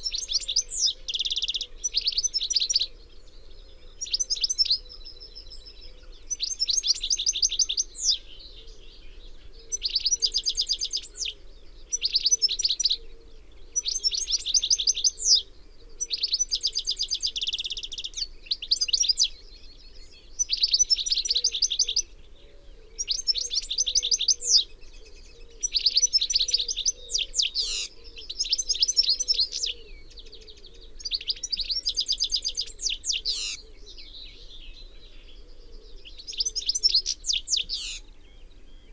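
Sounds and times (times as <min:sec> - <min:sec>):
finch singing trills: 0:00.0 - 0:38.9.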